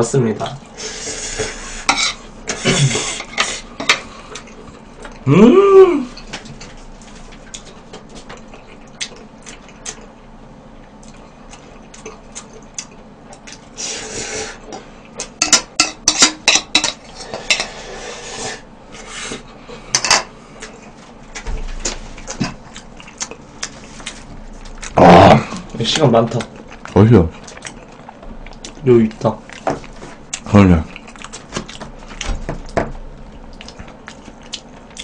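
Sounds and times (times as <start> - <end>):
chewing: 3.8 - 5.2, 6.2 - 13.8, 20.5 - 35.0.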